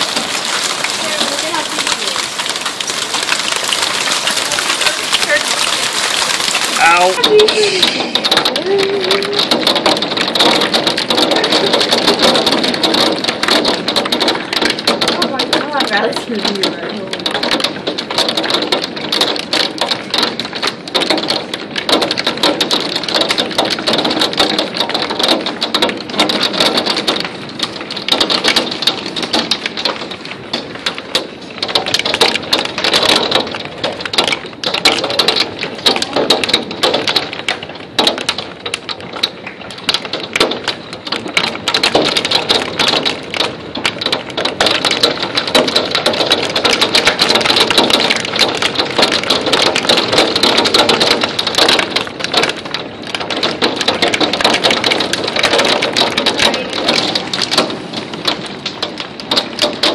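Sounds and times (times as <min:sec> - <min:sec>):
hail clattering on wooden deck: 0:00.0 - 0:59.9
heavy rain: 0:00.0 - 0:59.9.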